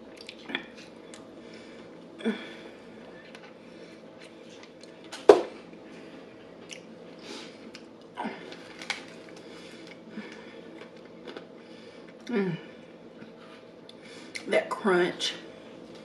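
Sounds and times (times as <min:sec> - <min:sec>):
chewing crispy fried chicken: 0:07.6 - 0:12.3.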